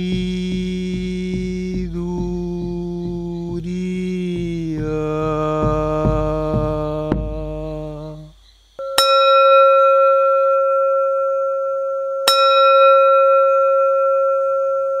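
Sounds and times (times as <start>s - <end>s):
bell-like metal chime: 8.8s - 15.0s.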